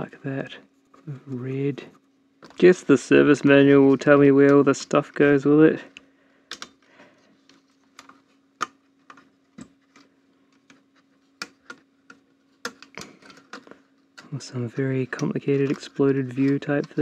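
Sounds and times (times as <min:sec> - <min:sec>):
fingers clicking and tapping electronics: 0:15.1 - 0:17.0.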